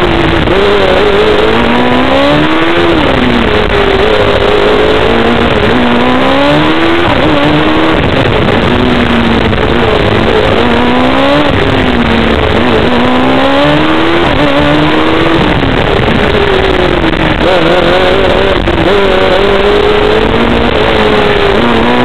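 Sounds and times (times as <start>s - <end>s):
dense rushing noise: 0.0s - 22.0s
race car engine revving: 0.0s - 22.0s.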